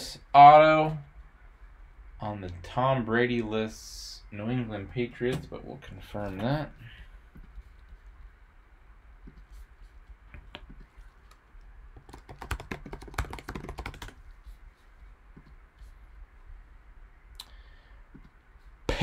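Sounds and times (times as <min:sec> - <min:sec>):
computer keyboard typing: 0:12.0 - 0:14.2.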